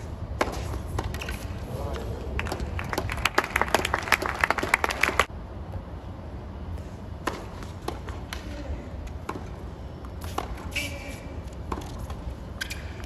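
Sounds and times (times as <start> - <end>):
crowd applause: 2.4 - 5.3
tennis ball impacts: 7.2 - 10.9.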